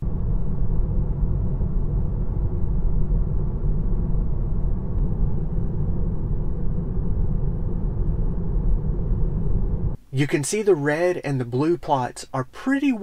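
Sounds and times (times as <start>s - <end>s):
tire and road noise in car: 0.0s - 10.0s.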